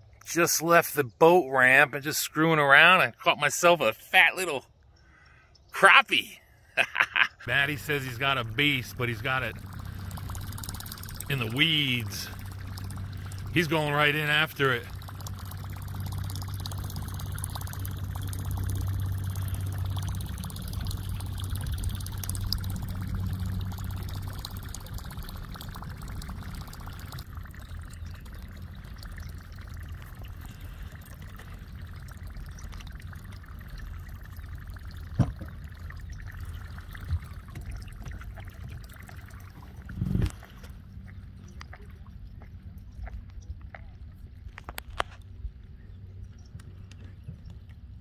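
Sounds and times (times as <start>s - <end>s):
water trickling and splashing: 7.4s - 45.4s
low steady hum: 7.4s - 48.0s.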